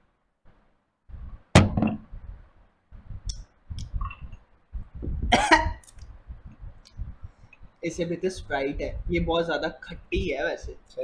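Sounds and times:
glass knocking on table: 1.6s - 2.0s.

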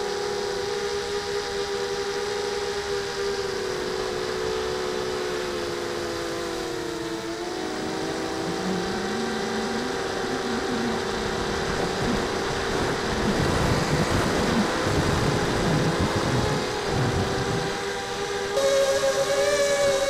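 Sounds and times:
quadcopter motors whining: 0.0s - 20.0s
wind rush on microphone: 8.5s - 18.6s.

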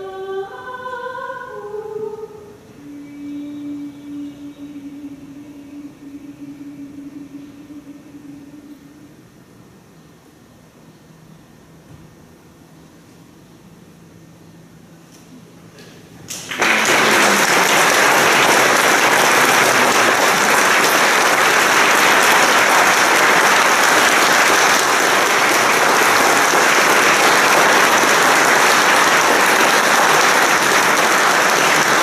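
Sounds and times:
audience applause: 16.3s - 32.0s.

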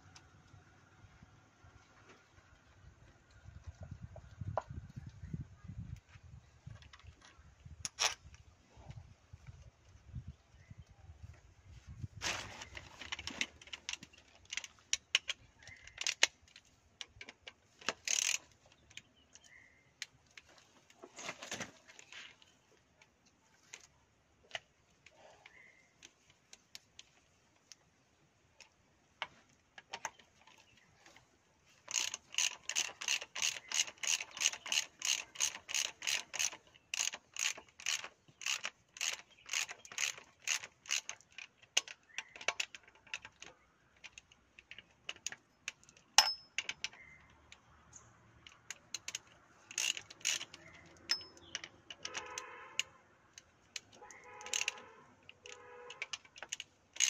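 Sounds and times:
ratchet wrench clicking: 17.8s - 18.6s, 31.9s - 43.4s, 48.4s - 52.4s, 53.3s - 54.8s.

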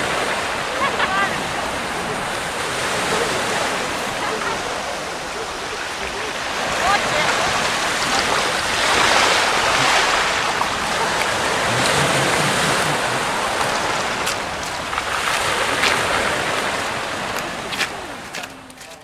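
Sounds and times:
wind on microphone: 0.0s - 18.7s
footsteps on gravel: 13.6s - 16.1s, 16.8s - 19.0s.

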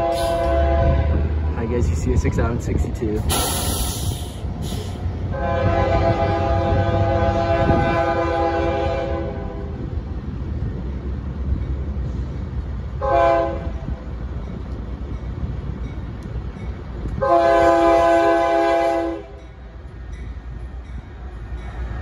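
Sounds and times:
locomotive air horn blasts: 0.0s - 1.5s, 5.3s - 9.8s, 13.0s - 13.8s, 17.2s - 19.4s
low rumble of locomotives: 0.0s - 22.0s.

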